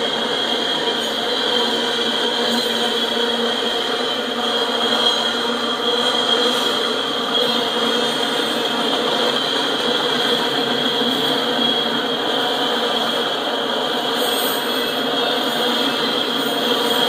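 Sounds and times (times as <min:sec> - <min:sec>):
constant high tone: 0:00.0 - 0:17.0
freight cars rolling and rattling: 0:03.4 - 0:17.0.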